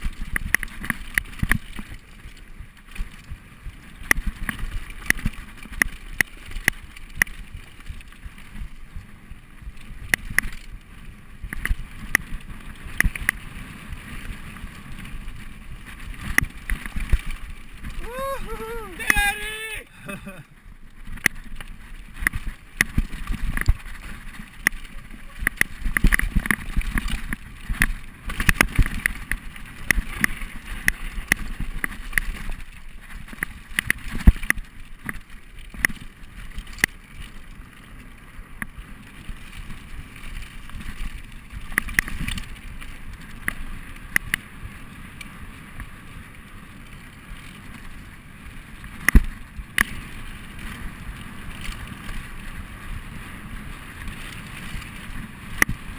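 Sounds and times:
bike knocking and rattling: 0.0 - 18.7, 20.2 - 55.9
bike tyres on dirt: 0.0 - 55.9.

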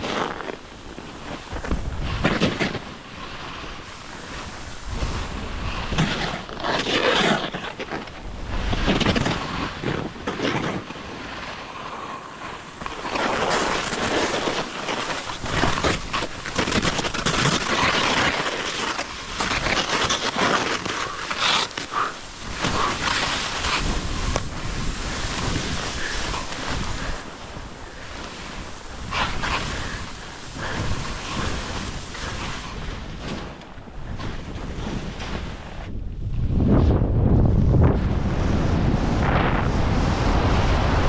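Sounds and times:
wind buffeting microphone: 0.0 - 11.3, 11.9 - 41.0
skis hissing and scraping on snow: 0.0 - 36.0, 37.8 - 41.0.

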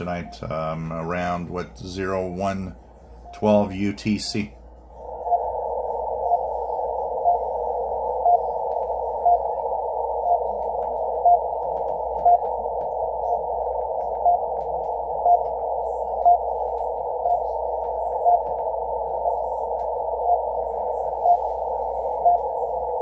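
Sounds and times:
radio hiss: 0.0 - 23.0
radio time signal beeps: 0.0 - 23.0.

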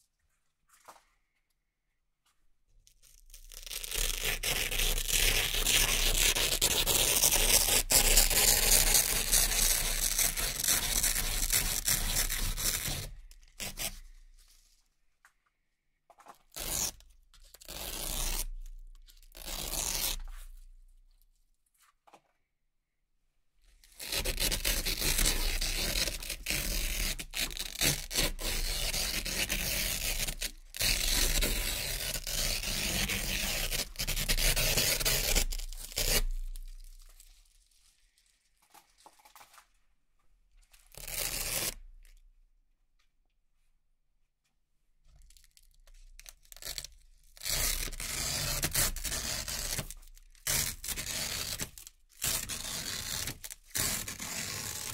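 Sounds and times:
velcro ripping: 3.0 - 14.1, 16.5 - 20.3, 23.8 - 37.8, 40.8 - 41.9, 45.3 - 54.9.

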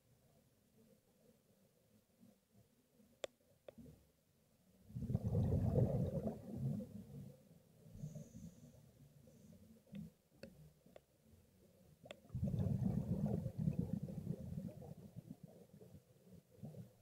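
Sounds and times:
faint clicks: 3.2 - 3.9, 9.8 - 11.2, 12.0 - 12.3
underwater bubbling: 4.9 - 8.4, 12.1 - 17.0.

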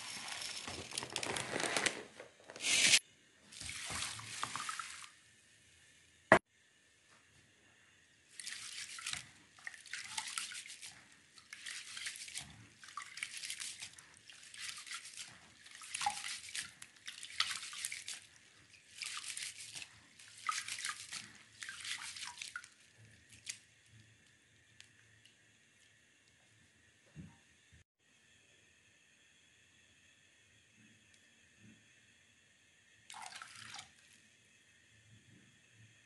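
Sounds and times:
rice swishing in water: 8.3 - 23.5.

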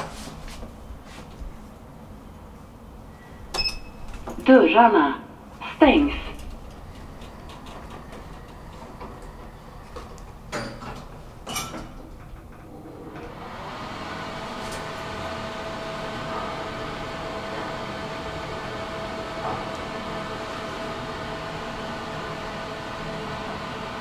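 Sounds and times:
elevator running hum: 0.0 - 24.0
elevator door click: 3.5 - 4.5, 5.9 - 13.4.

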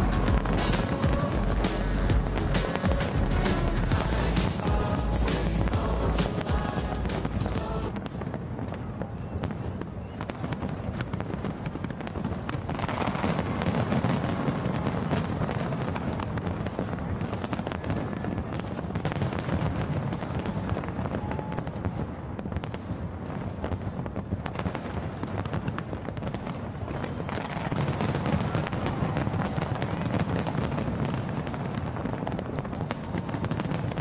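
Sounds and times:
fireworks crackling and popping: 0.0 - 34.0.

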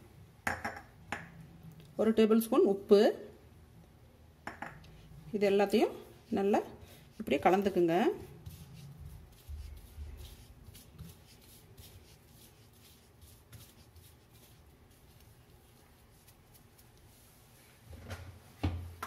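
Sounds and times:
spice powders scraping in a bowl: 5.7 - 17.3.

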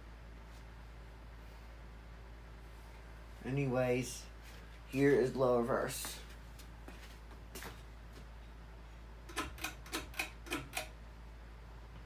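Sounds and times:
ceiling fan humming: 0.0 - 12.0
sharp clicks: 9.3 - 11.0.

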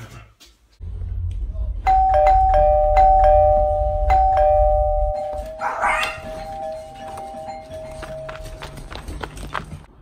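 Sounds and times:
doorbell chime ding-dong: 1.9 - 8.5.

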